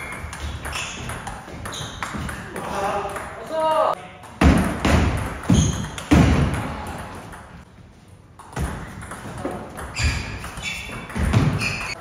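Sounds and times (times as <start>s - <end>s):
table tennis ball hits: 0.0s - 3.4s, 4.2s - 7.6s, 8.4s - 12.0s.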